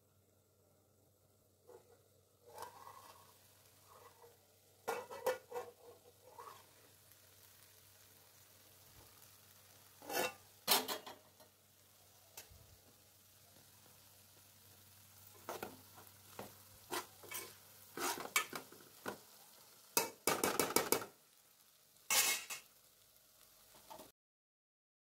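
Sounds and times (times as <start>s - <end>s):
spoon scraping a steel pot: 2.5s - 3.3s, 4.9s - 6.7s, 10.0s - 11.0s, 16.9s - 18.6s, 22.1s - 22.6s.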